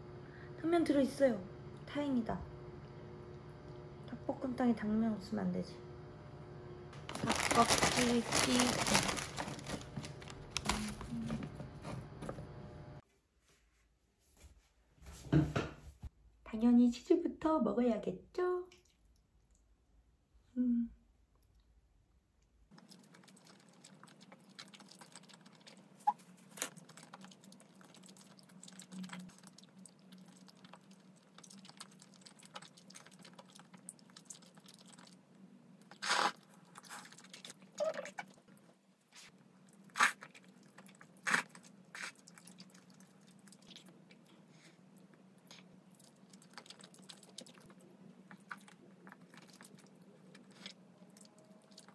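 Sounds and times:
low steady hum: 0.0s - 13.0s, 15.0s - 51.9s
chewing and biting: 22.7s - 35.2s, 39.7s - 44.4s, 45.0s - 51.9s.

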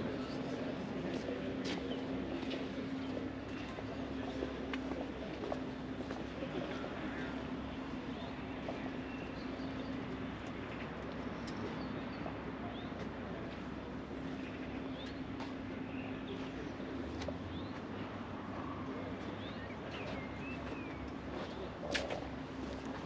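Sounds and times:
outdoor background hum: 0.0s - 23.0s.

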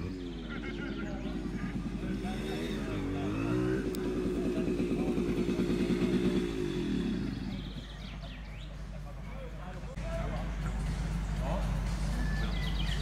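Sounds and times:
vehicle engine revving: 0.0s - 9.1s.

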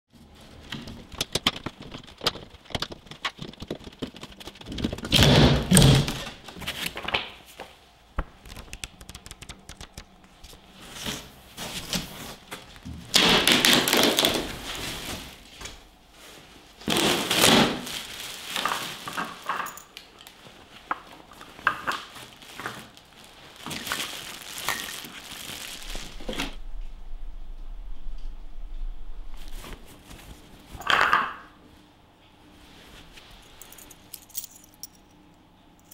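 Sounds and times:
foam block rustling: 10.8s - 19.5s, 20.4s - 26.6s.

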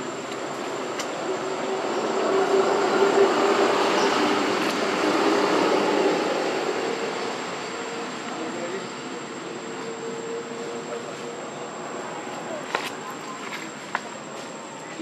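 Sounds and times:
passing engine drone: 1.2s - 11.1s.

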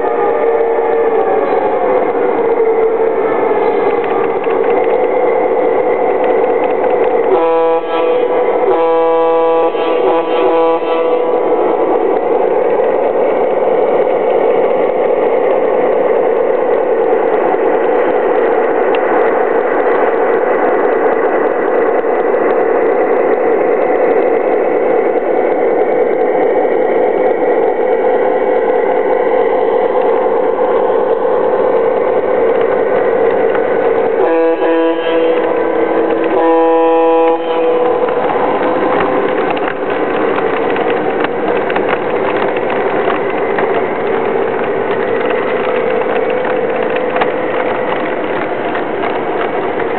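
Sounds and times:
model train wheels running: 0.0s - 49.9s
train horn blasts: 7.1s - 12.5s, 34.0s - 40.0s.

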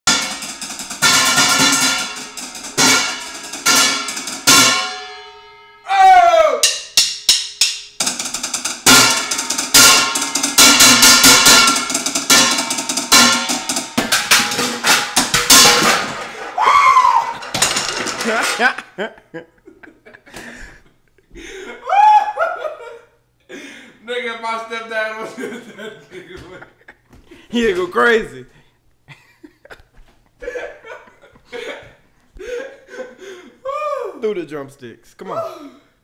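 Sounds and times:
drumsticks banging on pots: 0.1s - 5.2s, 6.6s - 18.8s.

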